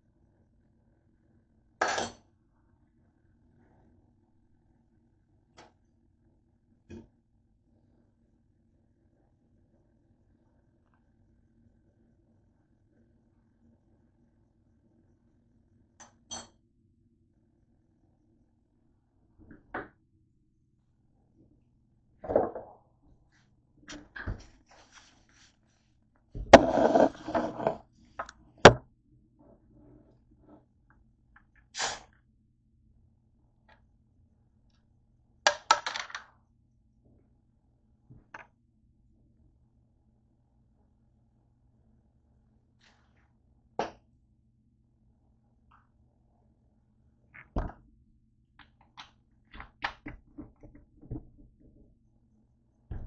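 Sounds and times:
bottle scraping on desk: 26.4 - 27.9.

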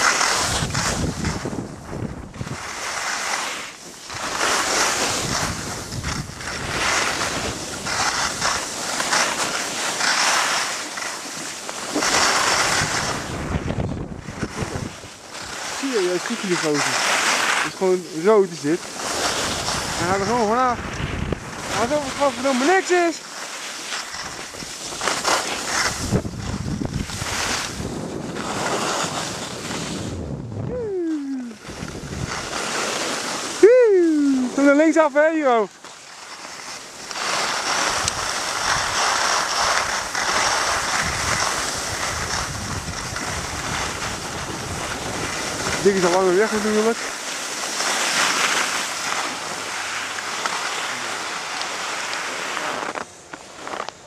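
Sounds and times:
wind rushing over microphone: 0.0 - 3.0, 4.0 - 8.8, 12.0 - 17.0, 17.6 - 23.1, 24.1 - 35.7, 37.8 - 47.0
skis scraping over snow: 0.0 - 54.0.

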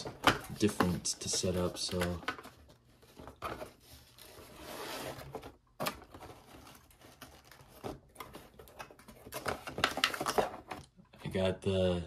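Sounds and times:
cardboard rustling and tapping: 0.0 - 10.9
cardboard scraping on cardboard: 3.4 - 5.5.

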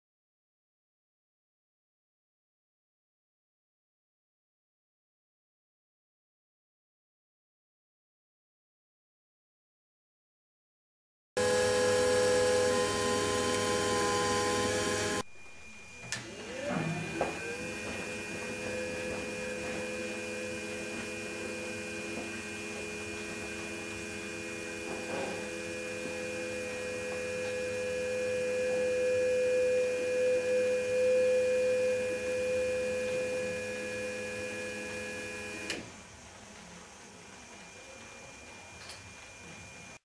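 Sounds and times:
test bench hum with high whine: 11.4 - 40.0.

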